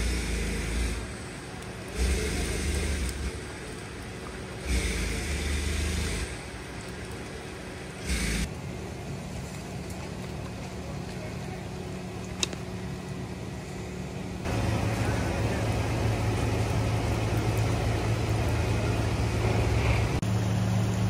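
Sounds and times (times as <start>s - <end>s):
low engine hum: 0.0s - 21.0s
passing traffic rush: 0.0s - 21.0s.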